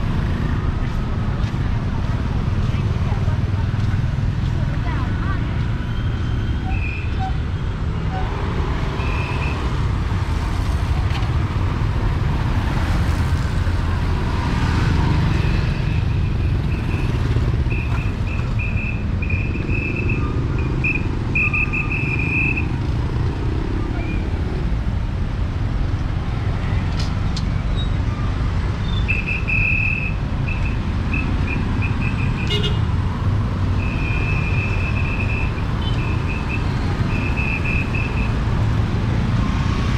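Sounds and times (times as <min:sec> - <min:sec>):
traffic rumble: 0:00.0 - 0:39.9.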